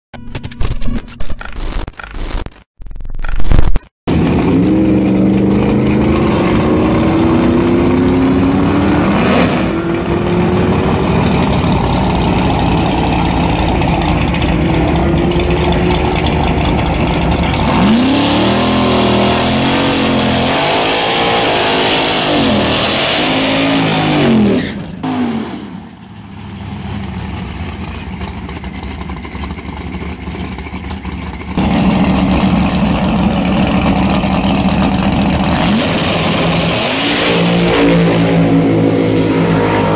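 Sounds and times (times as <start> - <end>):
truck engine revving at high revs: 4.1 - 26.0, 31.6 - 39.9.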